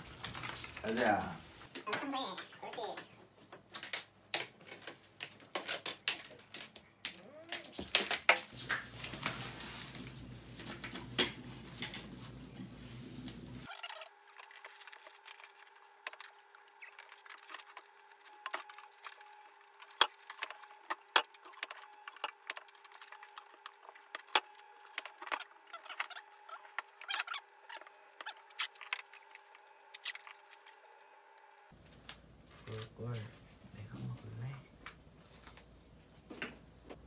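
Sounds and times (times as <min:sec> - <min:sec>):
cling film crinkling: 0:00.0 - 0:01.6, 0:07.5 - 0:33.4.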